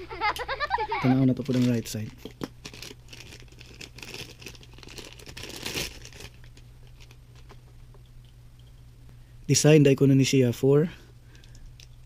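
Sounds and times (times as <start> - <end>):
plastic bag crinkling: 1.3 - 7.6.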